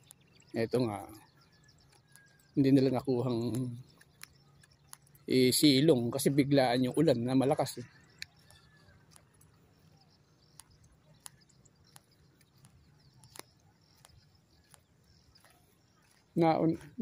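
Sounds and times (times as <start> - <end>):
footsteps on concrete: 8.3 - 17.0.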